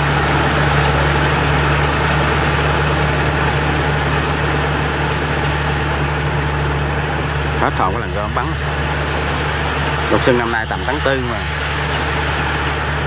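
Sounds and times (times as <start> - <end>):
combine harvester engine droning: 0.0 - 13.0.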